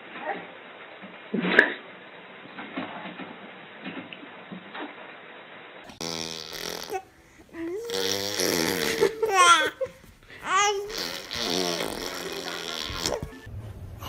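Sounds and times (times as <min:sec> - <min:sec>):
baby babbling: 0:06.4 - 0:13.4
baby high squeals: 0:10.4 - 0:13.2.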